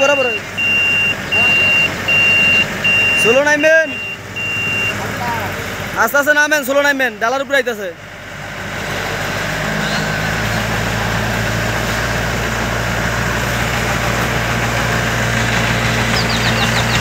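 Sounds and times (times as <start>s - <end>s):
high intermittent beeping: 0.0s - 5.1s
diesel engine idling: 0.0s - 17.0s.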